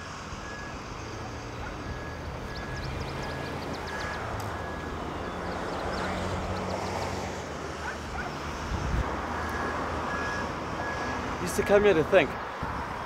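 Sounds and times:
distant traffic rumble: 0.0 - 13.0
wind: 0.0 - 13.0
reversing alarm beeps: 0.4 - 5.5, 9.4 - 11.2.

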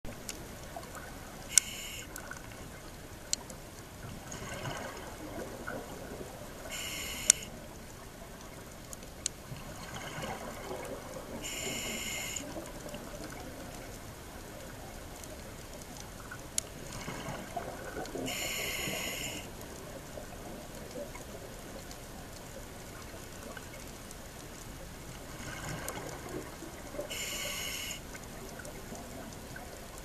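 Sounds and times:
regulator hissing inhale: 1.5 - 2.1, 6.7 - 7.5, 11.4 - 12.5, 18.3 - 19.6, 27.1 - 28.1
sharp clicks: 1.5 - 2.1, 6.8 - 7.5.

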